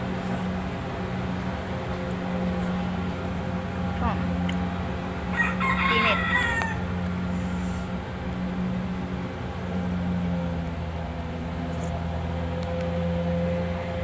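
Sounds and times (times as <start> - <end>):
harvester engine droning: 0.0 - 14.0
rooster crowing: 5.3 - 8.0.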